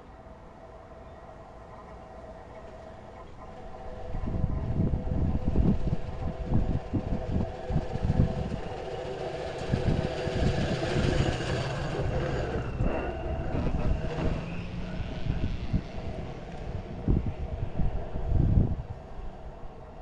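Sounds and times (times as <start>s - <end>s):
wheels whining on track: 0.0s - 20.0s
low uneven rumble: 1.4s - 20.0s
truck engine running: 3.4s - 18.7s.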